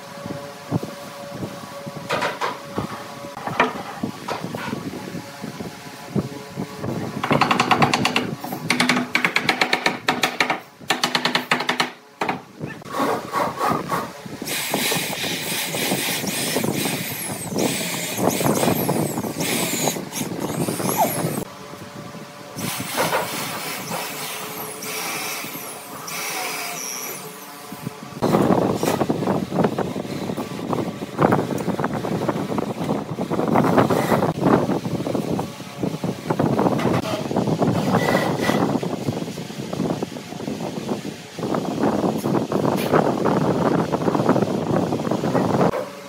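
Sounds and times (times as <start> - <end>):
rapid rattling and knocking: 7.2 - 12.4.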